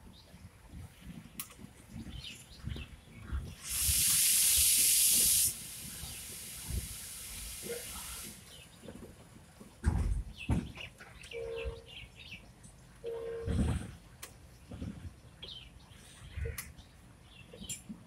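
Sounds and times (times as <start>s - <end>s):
low rumbling of moving coaches: 0.0s - 18.0s
air brake hissing: 3.6s - 8.4s.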